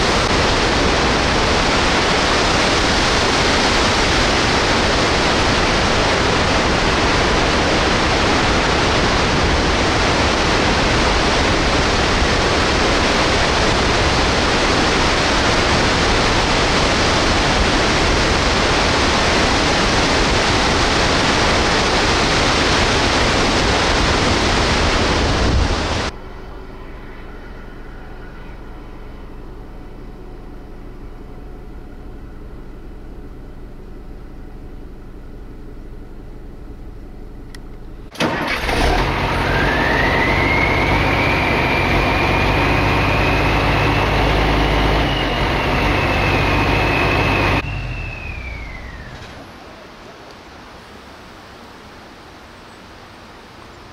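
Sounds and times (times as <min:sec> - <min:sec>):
waterfall rushing: 0:00.0 - 0:26.1
faint steady hum: 0:00.0 - 0:38.2.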